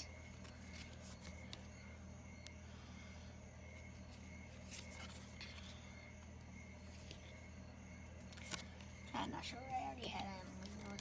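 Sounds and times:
steady low hum: 0.0s - 11.0s.

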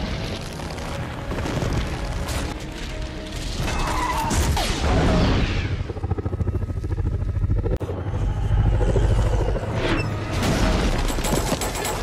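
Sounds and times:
fast-fluttering low rumble: 5.1s - 10.1s.

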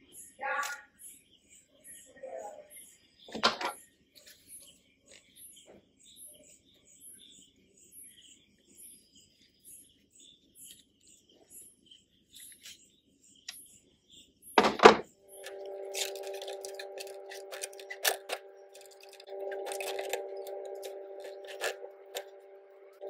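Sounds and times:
loud thunk: 14.6s - 15.1s
steady hum: 14.6s - 23.0s
insect chirping: 15.2s - 23.0s.

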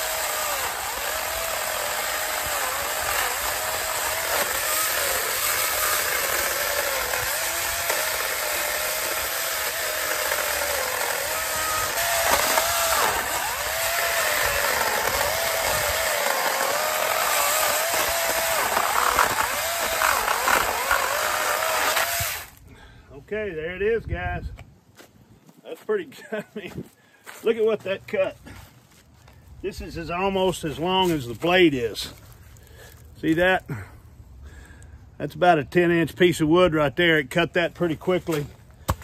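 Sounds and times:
electric chainsaw cutting log: 0.0s - 22.6s.

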